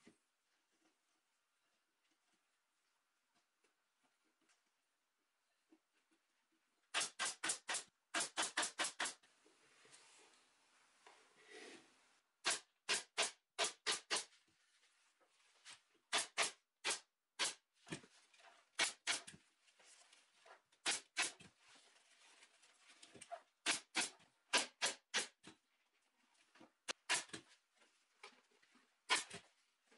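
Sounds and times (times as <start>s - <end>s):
pneumatic stapler clacks: 6.9s - 9.2s, 12.4s - 14.3s, 16.1s - 17.6s, 23.6s - 25.4s, 26.9s - 27.4s, 29.1s - 29.4s.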